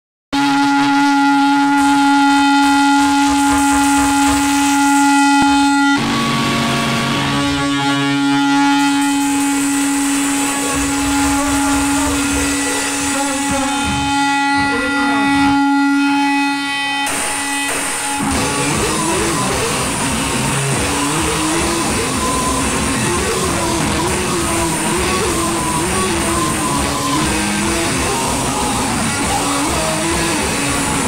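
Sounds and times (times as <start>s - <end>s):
amplified buzzy drone: 0.3s - 31.0s
low rumbling: 2.8s - 31.0s.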